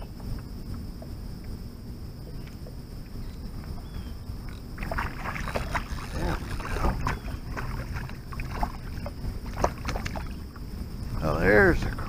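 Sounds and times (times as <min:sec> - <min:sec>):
fish splashing in water: 0:04.8 - 0:11.3.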